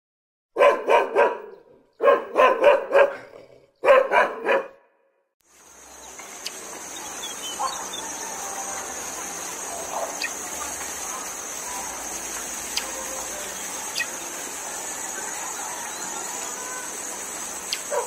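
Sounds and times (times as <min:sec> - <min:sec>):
dog barking: 0:00.6 - 0:04.9, 0:07.5 - 0:08.0
hiss with high whine: 0:05.5 - 0:18.0.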